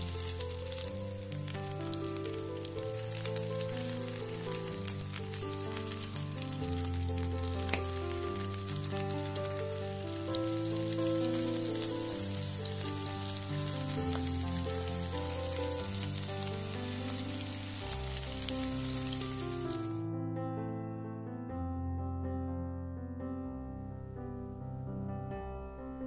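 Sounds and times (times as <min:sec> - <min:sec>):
patties sizzling in oil: 0:00.0 - 0:20.0
background music: 0:00.0 - 0:26.0.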